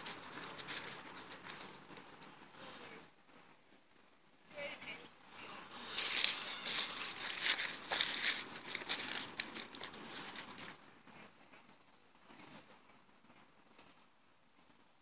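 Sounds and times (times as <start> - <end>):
birds pecking and tearing grass: 0.0 - 2.0, 5.8 - 10.8.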